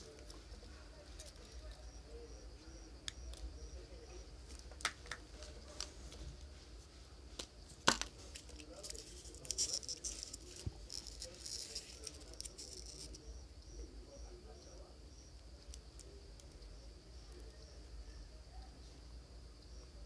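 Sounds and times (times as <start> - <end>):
small parts clicking and tapping: 0.0 - 1.9, 7.4 - 13.3, 14.6 - 17.6
crinkly rustling: 4.4 - 13.2.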